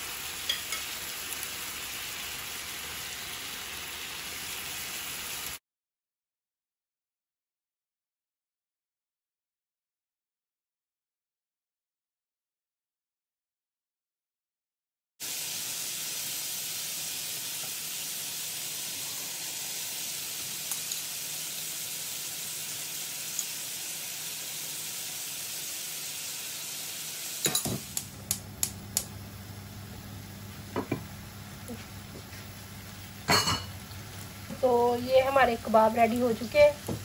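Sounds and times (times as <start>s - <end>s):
kebabs sizzling on a griddle: 0.0s - 5.6s, 15.2s - 37.0s.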